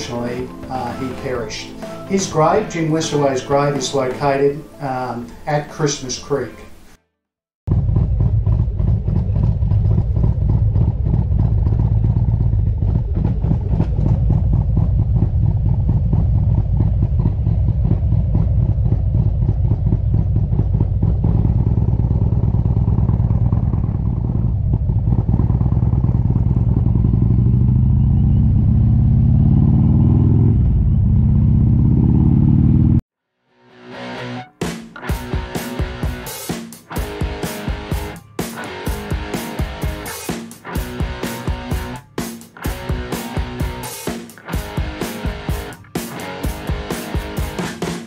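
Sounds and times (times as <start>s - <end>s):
motorcycle engine running: 7.7s - 33.0s, 35.1s - 48.0s.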